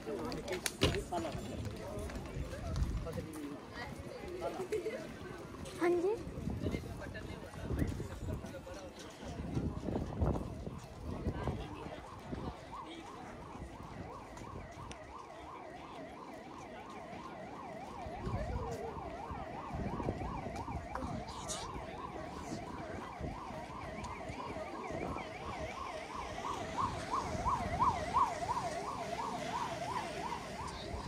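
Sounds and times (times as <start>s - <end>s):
electronic warbling siren: 10.9s - 31.0s.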